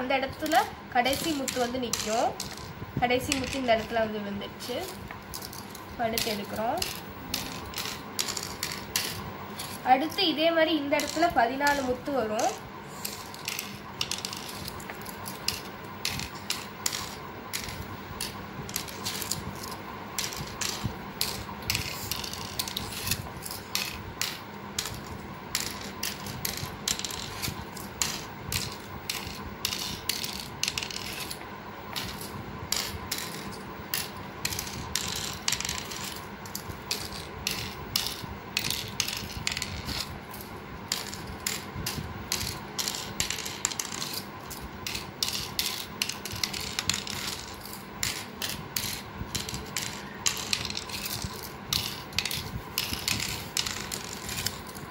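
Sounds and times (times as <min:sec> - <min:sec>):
shells clicking into board cups: 0:00.4 - 0:10.2, 0:10.9 - 0:54.9.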